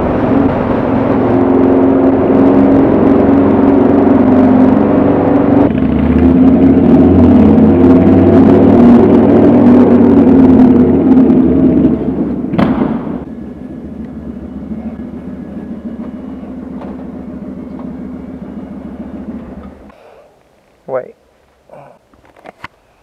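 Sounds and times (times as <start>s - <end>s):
motorcycle engine running: 0.0s - 19.9s
sharp clunk: 12.5s - 13.2s
motorcycle engine idling: 13.2s - 19.9s.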